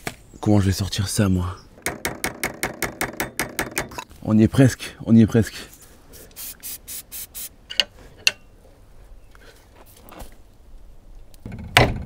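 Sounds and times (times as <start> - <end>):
aerosol spray can hissing: 6.3 - 7.6.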